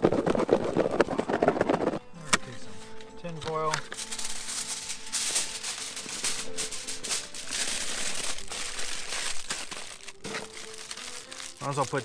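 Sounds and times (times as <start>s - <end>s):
aluminium foil crinkling: 3.7s - 12.0s.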